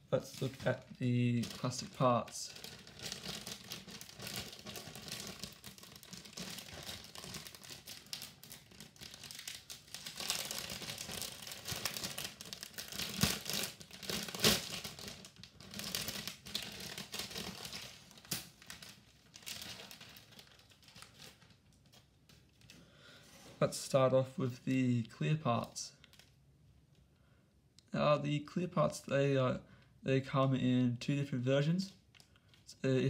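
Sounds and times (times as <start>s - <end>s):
plastic bags crinkling: 0.0s - 23.0s.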